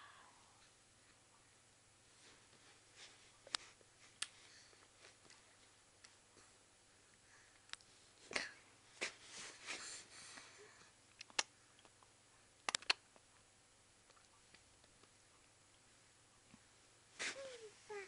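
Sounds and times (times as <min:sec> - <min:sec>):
baby eating smacks and clicks: 0:11.1 - 0:13.3, 0:14.0 - 0:15.2.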